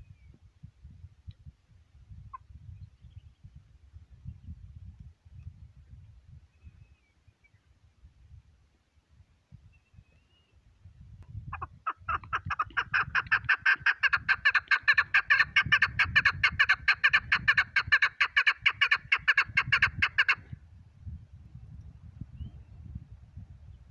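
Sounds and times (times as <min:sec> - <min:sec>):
partridge clucking call: 0:11.5 - 0:20.5.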